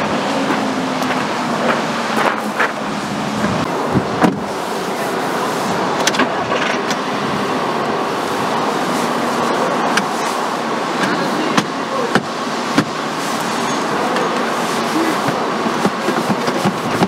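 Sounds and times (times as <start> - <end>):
car engine running: 0.0 - 17.0.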